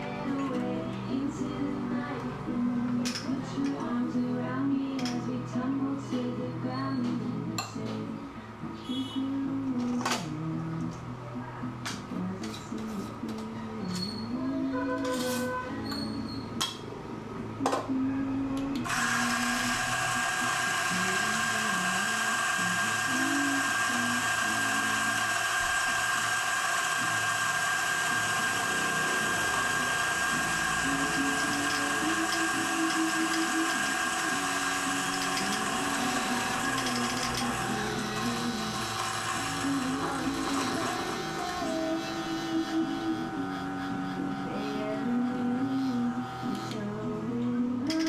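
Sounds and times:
coffee grinder grinding: 18.8s - 46.8s.

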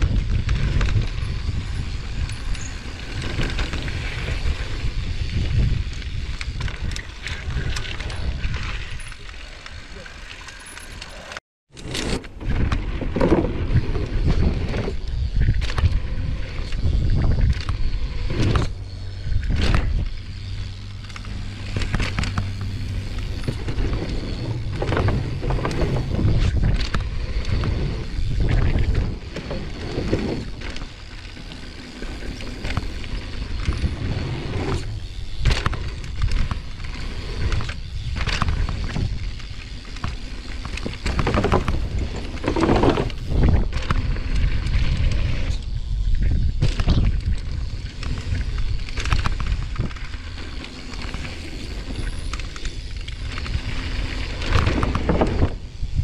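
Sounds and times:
wind on microphone: 0.0s - 9.1s, 12.4s - 56.0s
bike knocks and rattles: 11.8s - 56.0s.

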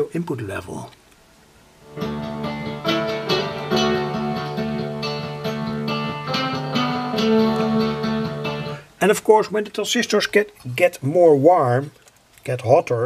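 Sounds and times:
plucked string music on loudspeaker: 1.9s - 8.8s.

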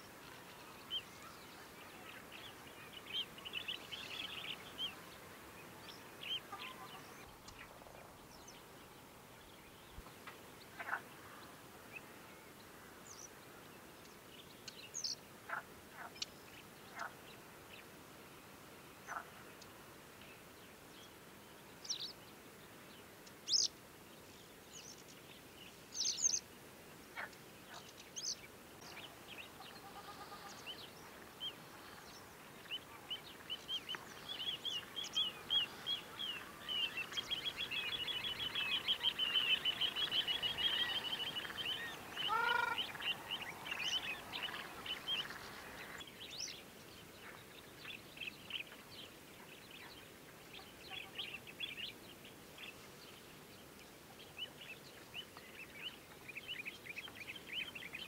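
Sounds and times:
birds chirping and calling: 27.2s - 46.6s
short low bird call: 42.2s - 42.9s.

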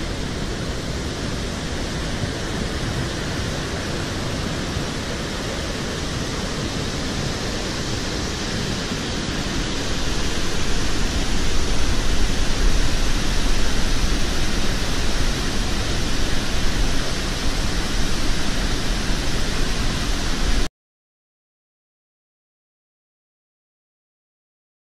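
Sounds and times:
waterfall rushing: 0.0s - 20.7s.

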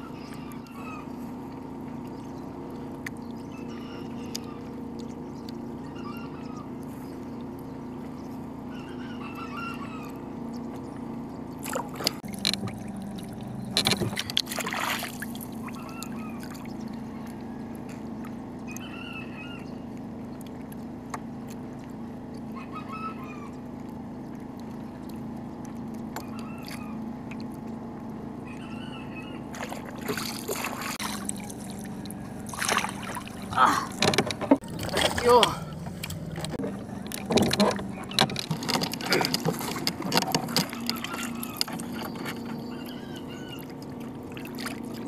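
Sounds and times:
steady low hum: 0.0s - 45.0s
water splashing: 11.5s - 18.8s, 29.4s - 45.0s.

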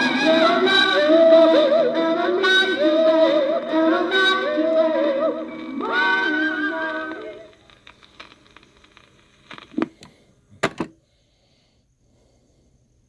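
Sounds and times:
soul vocals from vinyl record: 0.0s - 10.0s
vinyl surface crackle and clicks: 5.4s - 10.8s.

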